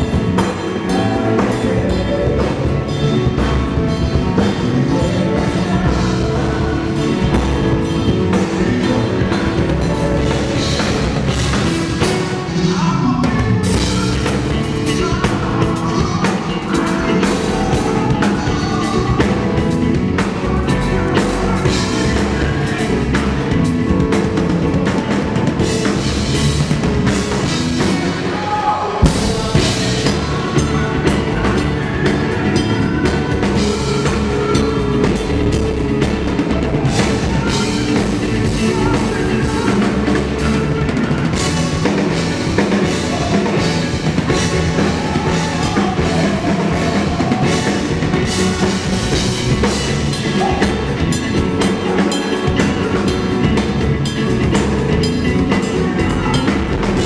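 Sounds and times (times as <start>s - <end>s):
music with drum kit: 0.0s - 57.0s.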